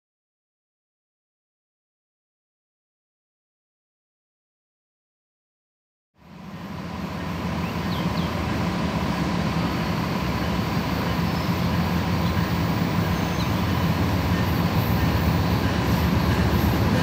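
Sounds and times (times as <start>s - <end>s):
diesel locomotive engine drone: 6.2s - 17.0s.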